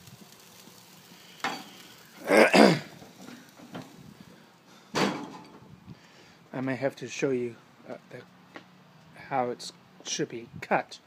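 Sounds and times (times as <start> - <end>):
burger patty sizzling on grill: 0.0 - 5.3.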